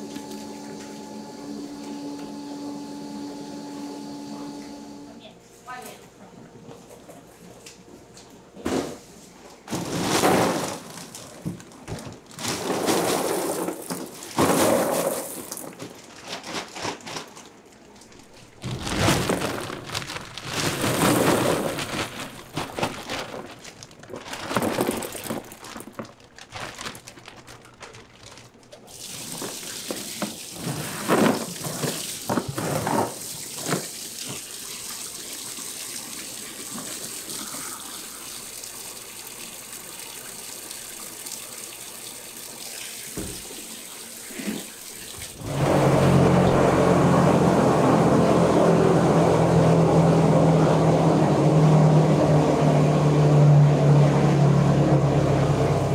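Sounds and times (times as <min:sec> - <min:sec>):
pieces tumbling into plastic bin: 0:09.6 - 0:34.4
water running from a tap: 0:28.9 - 0:30.7, 0:33.1 - 0:46.4.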